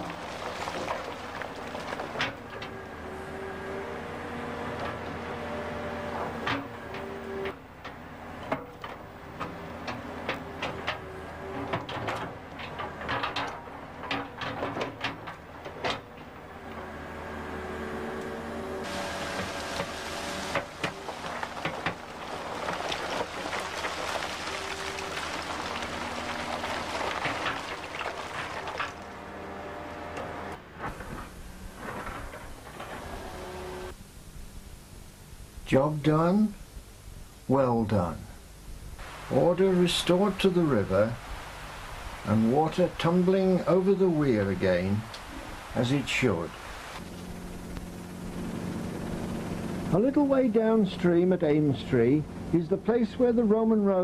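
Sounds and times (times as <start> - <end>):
rocks knocking and clacking: 0.0 - 2.6, 19.4 - 29.2
excavator bucket scraping stone: 0.0 - 3.3, 18.8 - 33.9
excavator engine humming: 0.0 - 35.5, 37.6 - 53.2.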